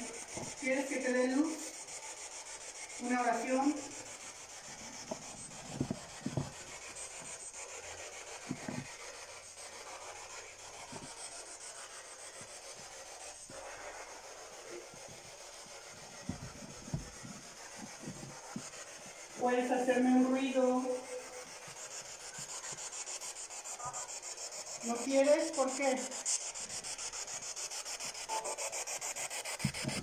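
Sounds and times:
soft handling thumps: 5.1s - 6.7s, 16.2s - 17.4s.

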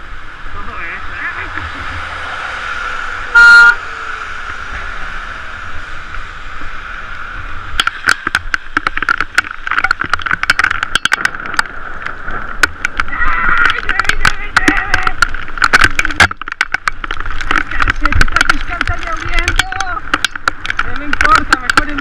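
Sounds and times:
bicycle on wet pavement: 0.0s - 22.0s
car horn toot: 3.3s - 3.8s
sharp clicks and knocks: 7.7s - 22.0s.

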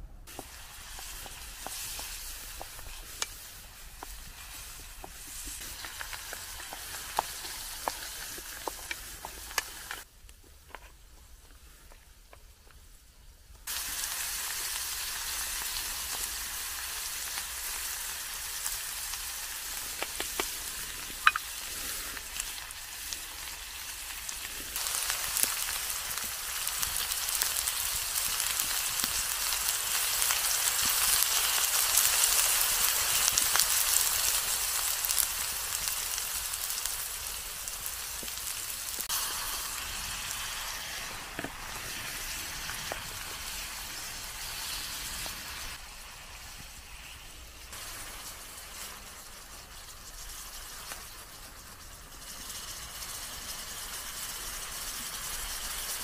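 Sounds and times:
food sizzling in a pan: 0.3s - 10.1s, 13.6s - 56.0s.

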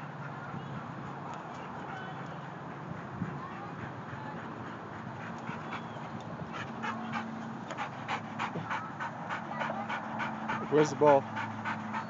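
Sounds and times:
dog panting: 0.1s - 12.0s.

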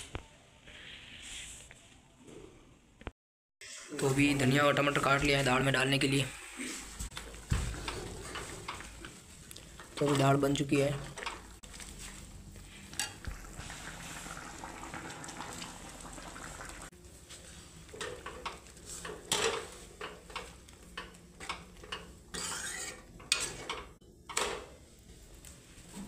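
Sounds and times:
ladle clinking and scraping pan: 21.9s - 23.9s.

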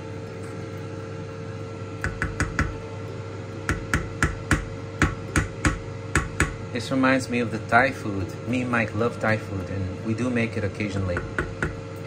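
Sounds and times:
steady hum: 0.0s - 12.0s
utensil knocking against pot: 2.0s - 2.8s, 3.7s - 6.6s, 11.1s - 11.8s.

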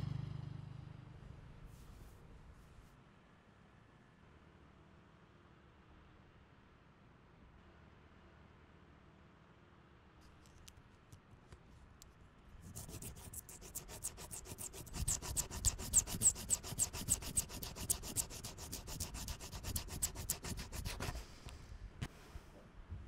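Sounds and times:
fingernail scratching wood: 12.6s - 21.3s.

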